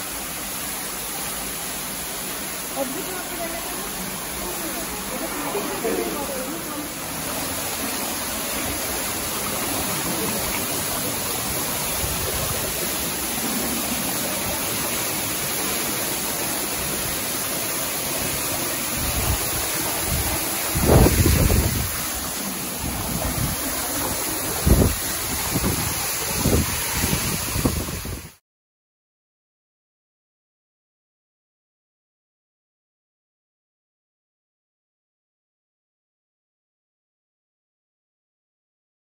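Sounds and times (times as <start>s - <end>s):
waterfall rushing: 0.0s - 28.4s
wind gusts on microphone: 19.0s - 28.4s.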